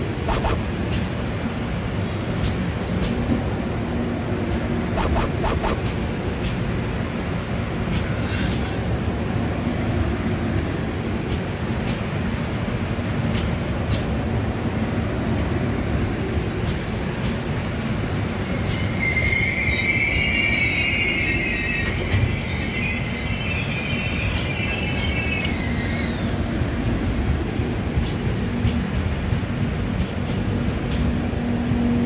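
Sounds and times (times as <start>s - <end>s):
train coaches rumbling past: 0.0s - 32.0s
high-pitched wheel squeal: 18.5s - 26.4s.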